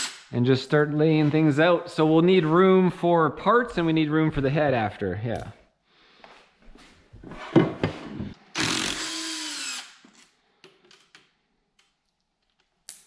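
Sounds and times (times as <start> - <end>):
power drill running: 8.6 - 10.0.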